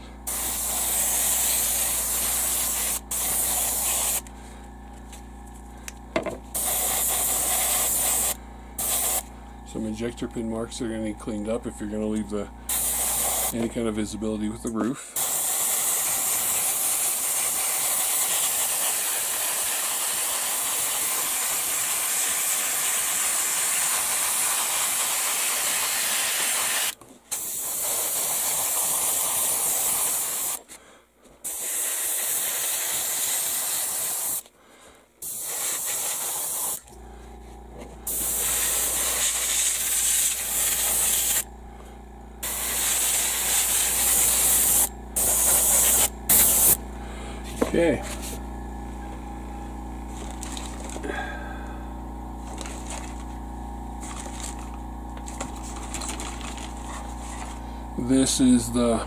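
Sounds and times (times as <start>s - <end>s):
low steady hum: 0.0s - 15.2s, 36.8s - 59.0s
airbrush spraying hiss: 0.3s - 4.3s, 6.6s - 9.3s, 12.7s - 13.6s, 15.2s - 30.6s, 31.4s - 34.5s, 35.2s - 36.8s, 38.1s - 41.5s, 42.4s - 46.8s.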